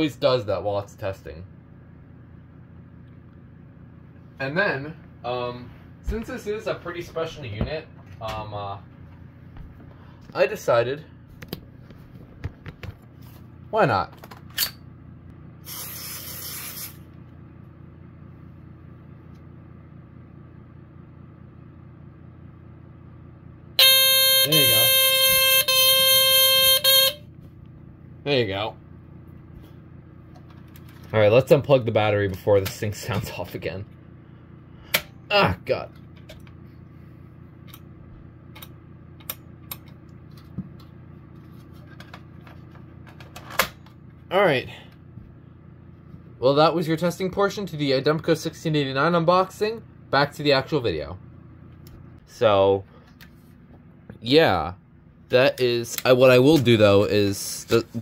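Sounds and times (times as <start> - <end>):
aerosol spray hiss: 15.7 - 17.0
smoke alarm piercing tone: 23.8 - 27.3.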